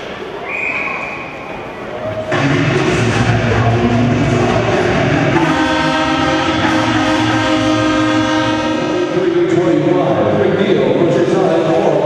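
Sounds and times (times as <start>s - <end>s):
arena goal horn: 5.3s - 10.0s.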